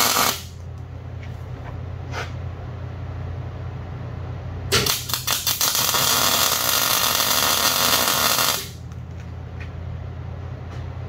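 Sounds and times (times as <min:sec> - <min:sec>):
welding arc crackling sizzle: 0:00.0 - 0:00.7, 0:04.7 - 0:08.9
steady low hum: 0:00.0 - 0:11.0.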